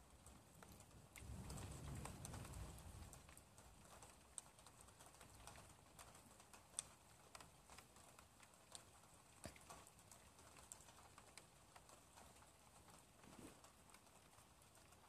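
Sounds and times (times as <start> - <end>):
faint irregular ticks and taps: 0.0 - 15.0.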